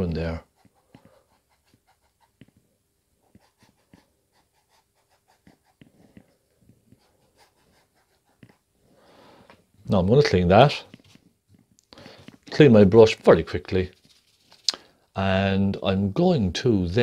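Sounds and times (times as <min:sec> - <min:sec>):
brush dabbing paint on canvas: 0:00.0 - 0:02.6, 0:03.2 - 0:08.8.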